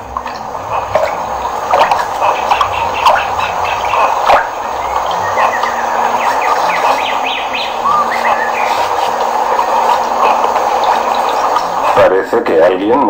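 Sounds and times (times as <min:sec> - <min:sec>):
stream rushing: 0:00.0 - 0:12.2
small birds chirping: 0:00.0 - 0:12.3.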